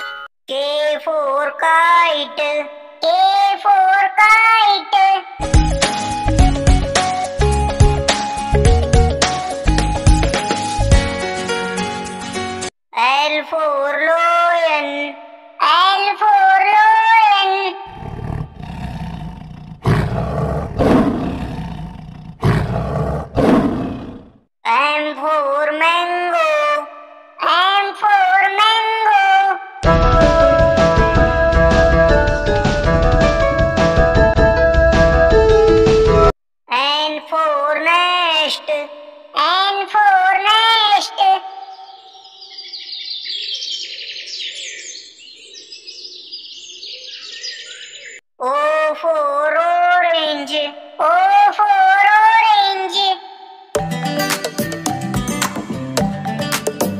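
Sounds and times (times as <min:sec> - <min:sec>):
lion roaring: 0:17.9 - 0:24.4
nestlings begging with shrill chirps: 0:41.5 - 0:48.2.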